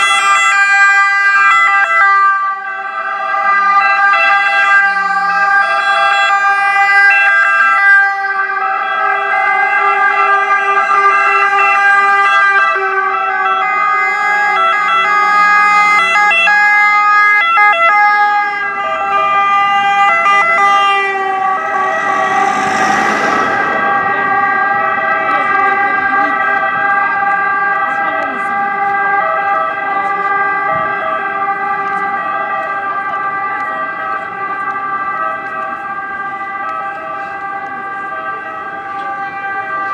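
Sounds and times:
ambulance sirens: 0.0 - 39.9
rush of noise: 21.1 - 25.9.

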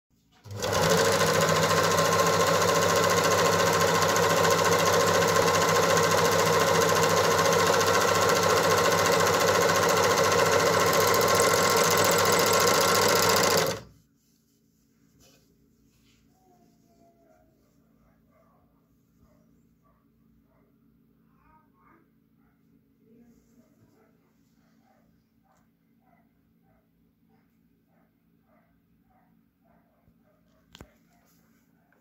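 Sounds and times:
overlock sewing machine running: 0.4 - 13.9.

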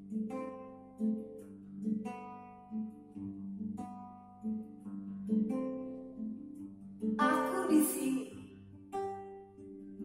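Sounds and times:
acoustic guitar chords ringing: 7.2 - 9.8.

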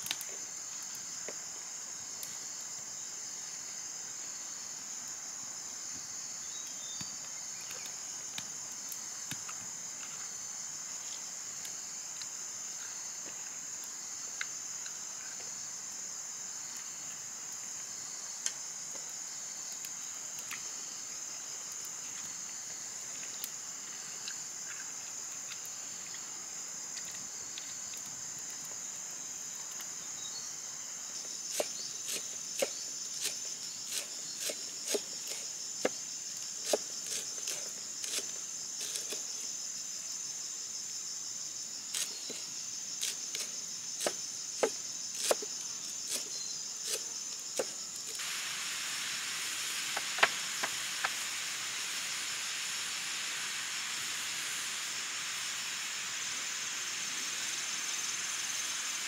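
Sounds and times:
insects chirping: 0.0 - 59.0
steady hiss: 0.0 - 59.0
cleaver chopping on wood block: 44.0 - 45.5.

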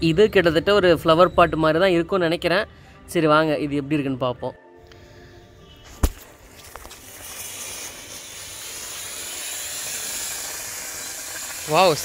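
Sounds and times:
fountain firework hissing: 6.6 - 12.0.

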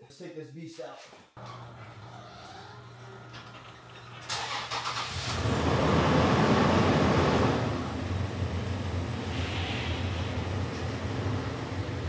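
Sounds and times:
car engine cranking: 1.4 - 9.0
car engine idling: 2.8 - 12.0.

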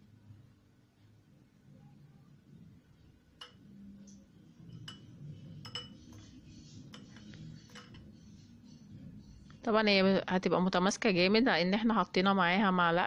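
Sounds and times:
fork clinking against glass bowl: 4.7 - 8.1.

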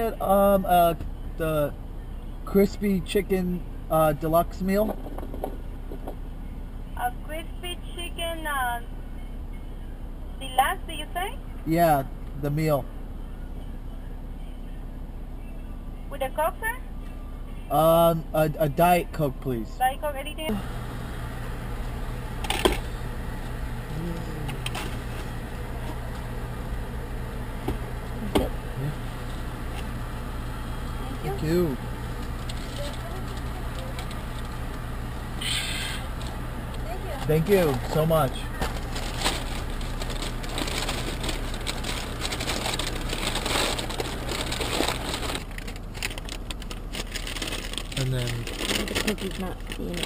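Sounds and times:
idling car hum inside cabin: 0.0 - 50.0
paper wrapper and plastic cup rustling: 37.7 - 50.0.

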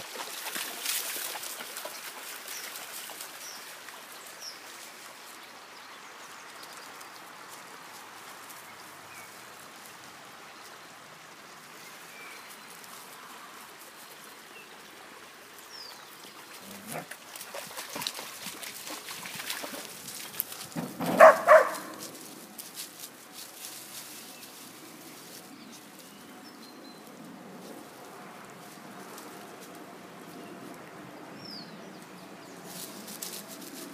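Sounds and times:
dogs splashing in water: 0.0 - 3.8, 16.4 - 22.2
shallow creek burbling: 0.0 - 22.4
dog barking: 21.1 - 22.0.

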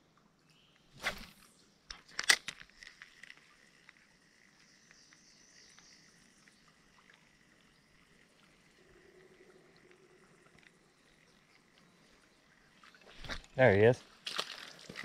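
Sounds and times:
faint insect chorus: 2.8 - 14.8.

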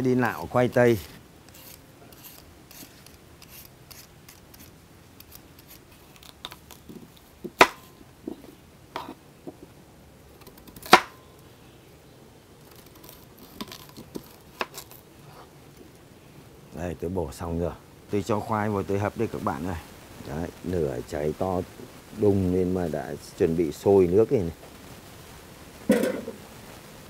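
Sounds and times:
potato peeler scraping: 0.3 - 7.2.

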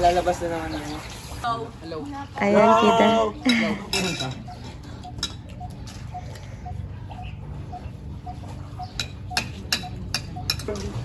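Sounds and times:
plates and cutlery clinking: 3.5 - 6.1, 8.8 - 11.0.

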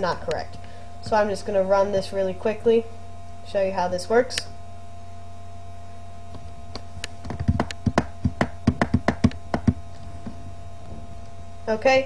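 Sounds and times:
steady electrical hum: 0.0 - 12.0
keyboard clicks and taps: 7.2 - 9.8.

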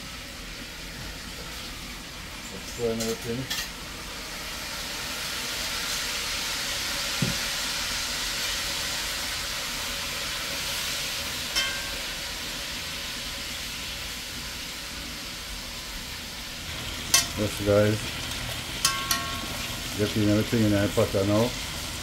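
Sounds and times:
chicken sizzling in hot oil: 0.0 - 22.0
knock: 7.2 - 7.4
ringing metal clank: 11.6 - 12.1, 17.1 - 17.4, 18.8 - 19.7.

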